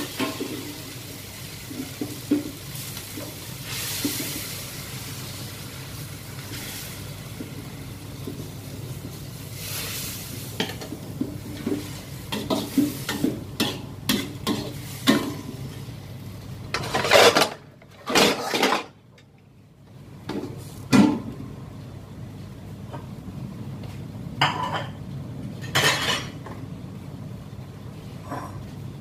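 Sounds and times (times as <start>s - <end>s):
sauce sizzling in hot wok: 0.0s - 16.6s.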